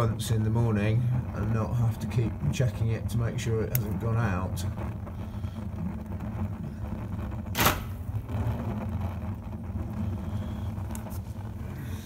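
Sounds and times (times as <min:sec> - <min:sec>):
low buzzing hum: 0:00.0 - 0:12.0
sharp crack: 0:03.5 - 0:04.7, 0:06.9 - 0:08.9.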